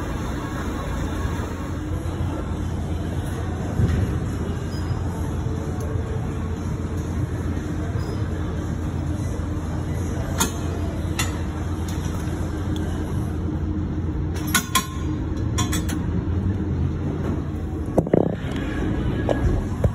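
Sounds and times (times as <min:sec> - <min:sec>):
gym room rumble: 0:00.0 - 0:19.9.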